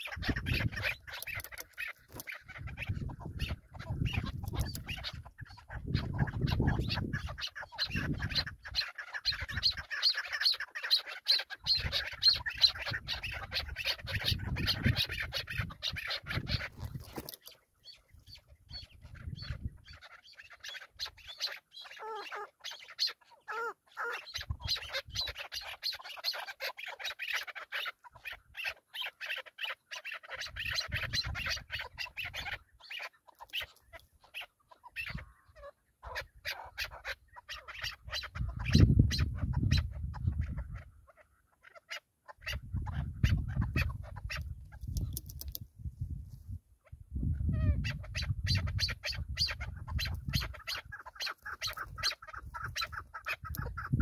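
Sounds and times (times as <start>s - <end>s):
partridges clucking chatter: 0.0s - 40.9s, 47.8s - 54.0s.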